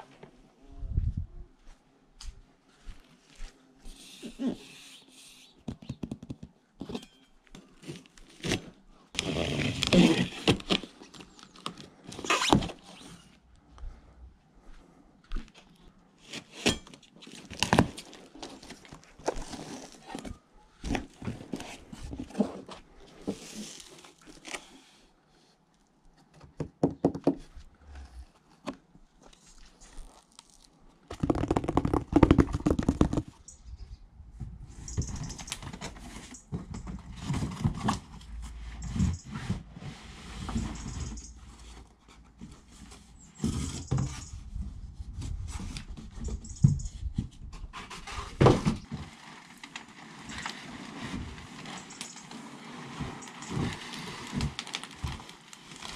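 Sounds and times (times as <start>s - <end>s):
cardboard scraping and rustling: 7.7s - 11.3s, 16.2s - 24.7s, 35.5s - 44.2s, 47.2s - 55.9s.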